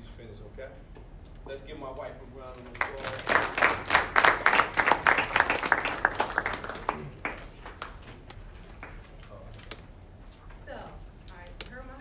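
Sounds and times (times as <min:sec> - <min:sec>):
audience applauding: 0:02.8 - 0:08.0.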